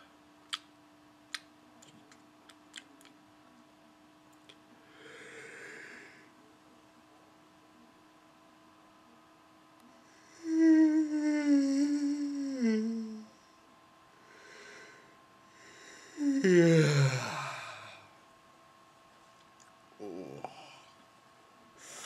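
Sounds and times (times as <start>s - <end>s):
man yawning: 16.2s - 18.0s.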